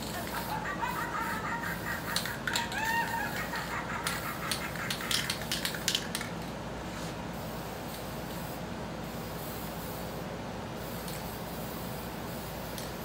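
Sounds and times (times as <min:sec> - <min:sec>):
spray can rattling: 0:00.0 - 0:06.6.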